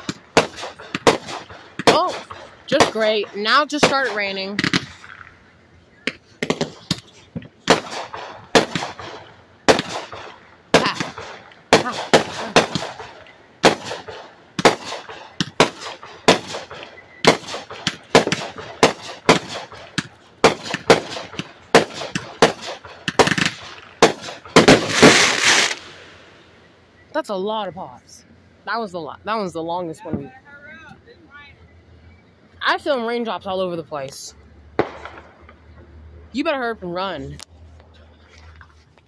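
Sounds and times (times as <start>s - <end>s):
firework shots popping: 0.0s - 5.4s, 6.0s - 26.1s, 34.8s - 35.6s.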